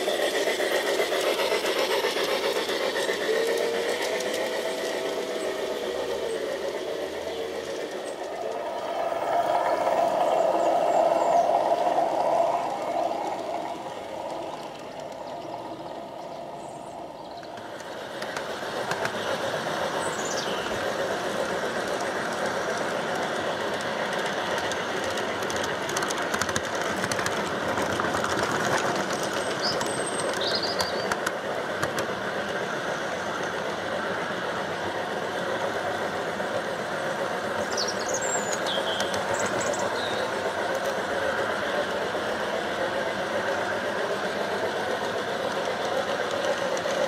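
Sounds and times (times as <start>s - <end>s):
model train whirring rumble: 0.0s - 47.0s
clicks over rail joints: 20.6s - 32.6s.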